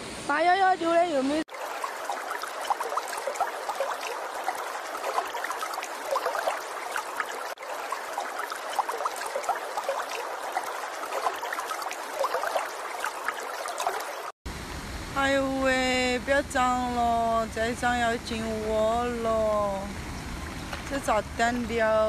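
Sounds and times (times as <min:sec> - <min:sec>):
floodwater rushing: 0:00.0 - 0:22.0
small water splashes: 0:01.3 - 0:14.4, 0:17.4 - 0:22.0.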